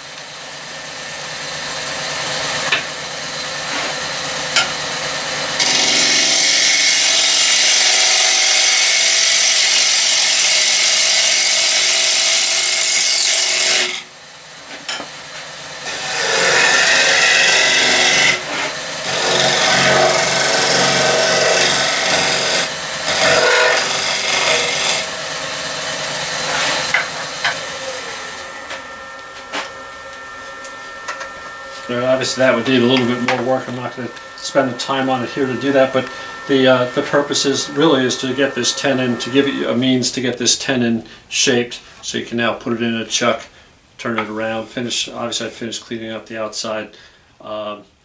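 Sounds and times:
lathe gouge cutting wood: 5.1 - 14.1, 15.8 - 40.6
lathe spinning down: 5.6 - 8.2, 15.9 - 40.4.

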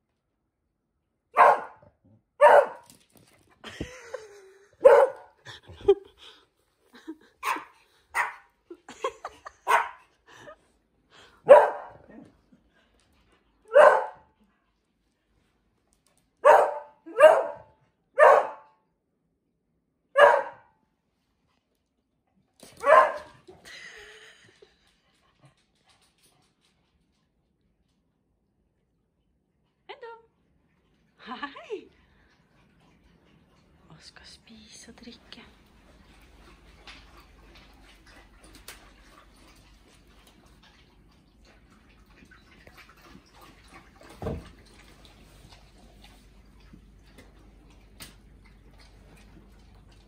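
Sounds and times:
dogs barking: 1.4 - 1.8, 2.4 - 2.8, 4.8 - 5.4, 7.4 - 8.5, 9.6 - 10.0, 11.4 - 12.1, 13.7 - 14.3, 16.4 - 18.7, 20.2 - 20.7, 22.8 - 23.3.

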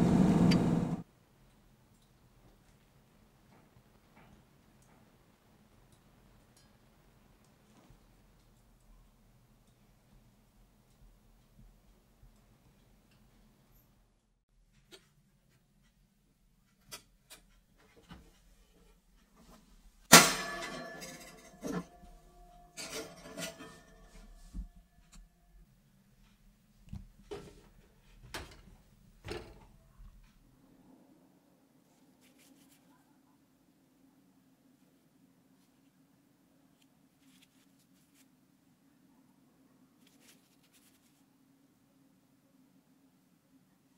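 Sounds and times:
oven rack clunk: 20.1 - 22.0
metal oven rack clanking: 20.1 - 24.2.

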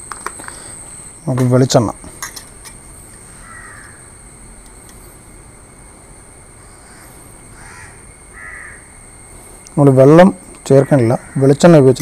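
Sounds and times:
high-pitched insect drone: 0.0 - 12.0
crows cawing: 3.3 - 4.1, 6.6 - 9.0, 10.7 - 11.6.

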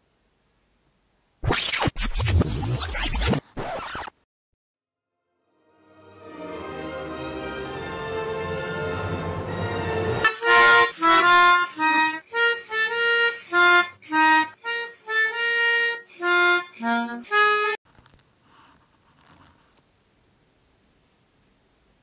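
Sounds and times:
orchestral film music: 5.5 - 11.6
harmonica tune: 6.6 - 17.8.

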